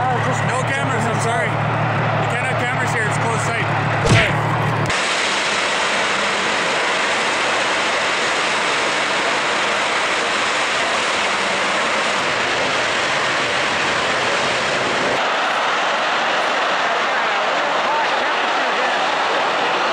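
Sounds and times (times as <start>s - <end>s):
high pressure gas rushing: 4.1s - 15.2s.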